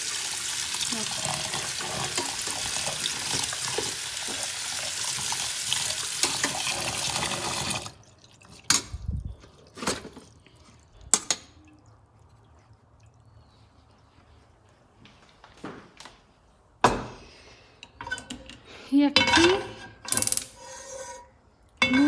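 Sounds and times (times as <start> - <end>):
tap water running into pot: 0.0 - 12.4.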